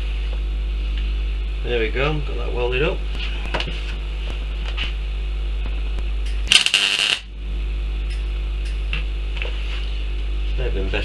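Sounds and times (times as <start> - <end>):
mains hum: 0.0 - 11.0
welder crackle: 5.6 - 7.3.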